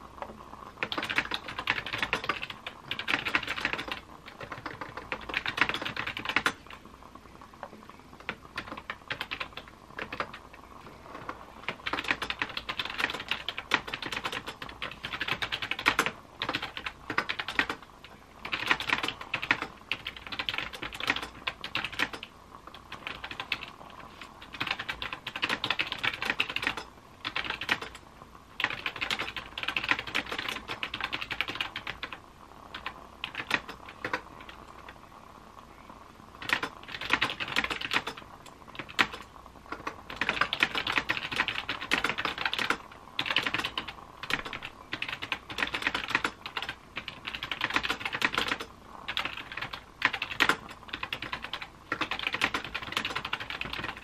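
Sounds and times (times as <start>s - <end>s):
typing on laptop keyboard: 0.2s - 6.8s, 7.6s - 28.0s, 28.6s - 35.0s, 36.4s - 54.0s.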